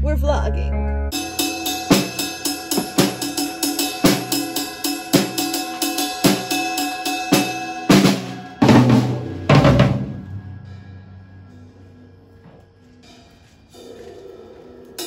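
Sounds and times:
cymbal crashes: 1.1s - 12.4s
drum kit beat with cymbals: 1.1s - 14.0s
deep drum hits: 7.3s - 11.4s.

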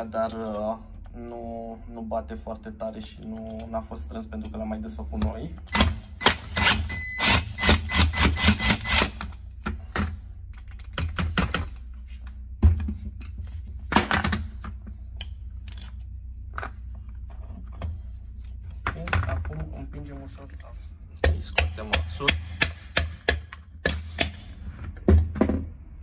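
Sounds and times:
metal clinks and knocks: 12.7s - 18.0s
impact wrench hammering: 21.2s - 25.6s.

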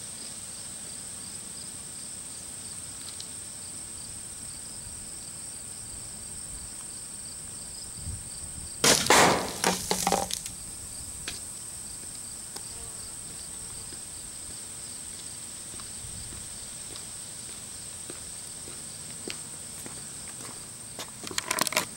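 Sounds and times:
high chorus of insects: 0.0s - 21.9s
bottle bomb bursting: 8.8s - 10.4s.

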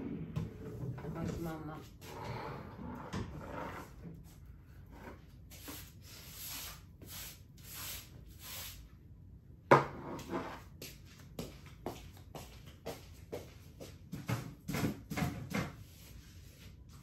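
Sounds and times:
broom sweeping a floor: 3.7s - 9.0s, 10.0s - 17.0s.

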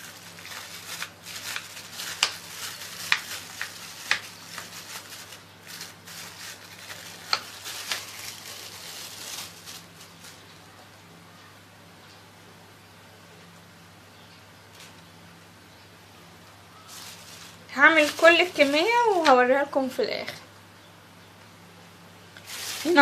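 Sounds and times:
plastic bag crinkling: 0.0s - 10.8s, 16.7s - 19.3s, 22.4s - 23.0s
low steady hum: 0.0s - 23.0s.

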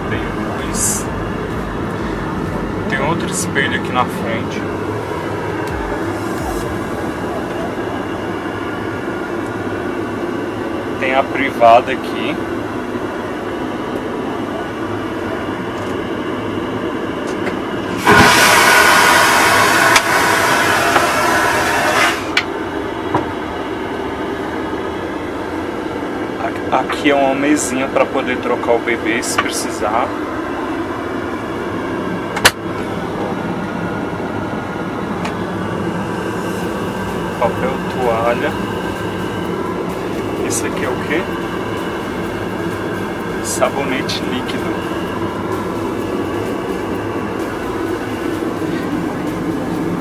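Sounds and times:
faint hum: 0.0s - 19.9s, 22.3s - 50.0s
airliner cabin drone: 0.0s - 50.0s
vacuum toilet flushing whoosh: 5.1s - 9.0s, 17.9s - 22.4s.

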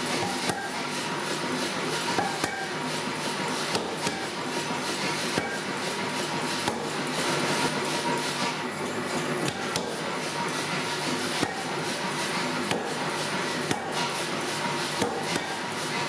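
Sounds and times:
power hammer blows on metal: 0.0s - 0.9s, 3.7s - 4.4s
machine running clatter: 0.0s - 16.0s.

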